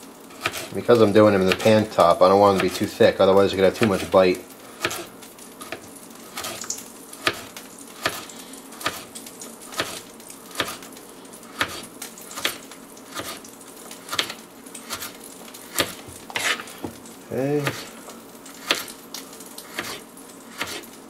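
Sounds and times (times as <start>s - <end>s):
knife slicing carrot: 0.3s - 0.8s, 4.8s - 5.1s, 5.7s - 10.9s, 11.5s - 16.7s, 18.5s - 18.9s, 19.6s - 21.0s.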